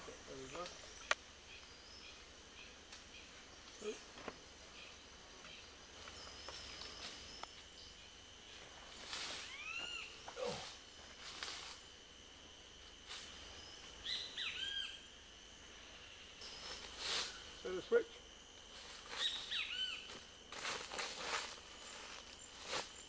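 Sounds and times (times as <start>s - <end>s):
high insect drone: 0.0s - 23.0s
rustling in dry leaves: 8.5s - 12.0s, 12.8s - 14.1s, 16.4s - 23.0s.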